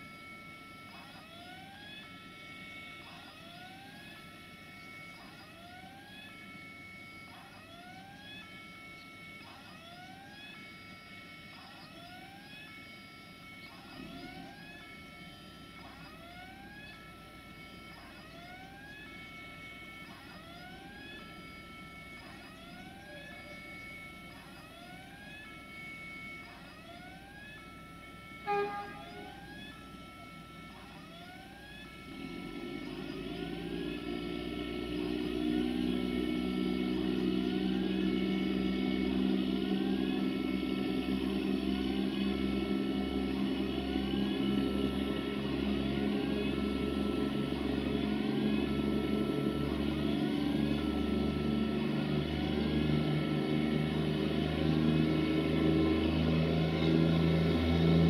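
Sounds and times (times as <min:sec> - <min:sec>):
electronic warning signal: 0:00.0 - 0:58.0
train low drone: 0:28.4 - 0:29.6, 0:32.1 - 0:58.0.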